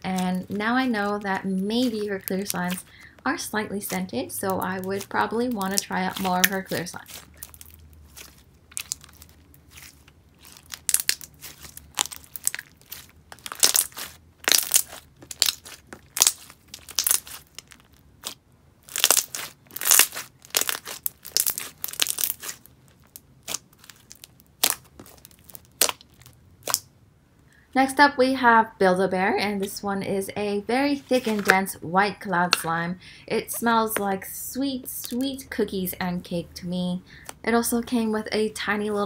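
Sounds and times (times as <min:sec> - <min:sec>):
slime clicking and popping: 0:04.6 - 0:26.9.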